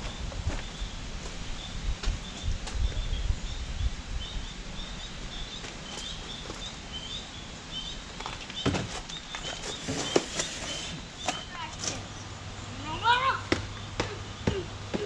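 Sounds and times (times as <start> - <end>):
small bird chirping: 1.5 - 13.0.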